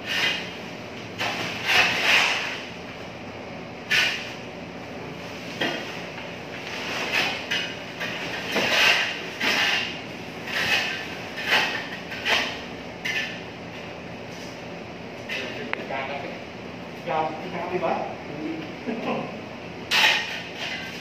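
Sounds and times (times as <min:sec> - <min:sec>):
shovel scraping concrete floor: 0:00.0 - 0:00.6, 0:01.2 - 0:02.7, 0:03.8 - 0:04.4, 0:05.3 - 0:13.4, 0:19.9 - 0:21.0.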